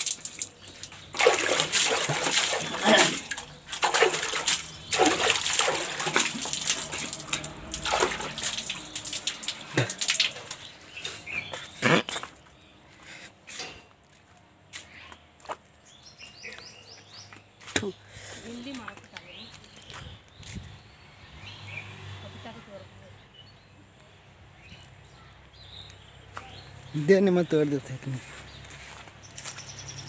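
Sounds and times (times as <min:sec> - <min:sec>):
water splashing on concrete floor: 0:00.0 - 0:12.4.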